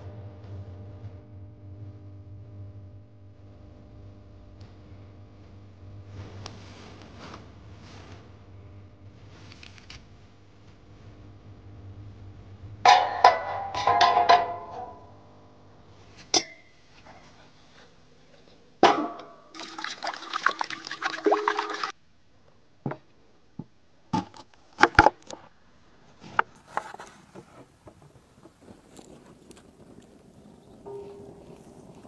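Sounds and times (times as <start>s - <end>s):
knocks and clatters: 12.9s - 15.1s
metal pot ring clanking: 12.9s - 15.1s, 30.8s - 32.0s.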